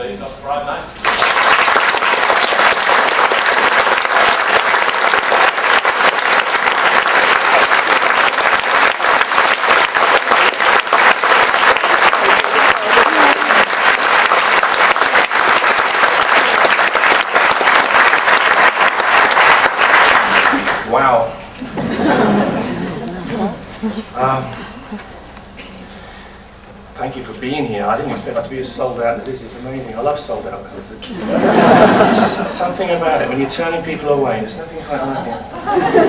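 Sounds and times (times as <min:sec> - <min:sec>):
audience applauding: 0:01.0 - 0:21.0.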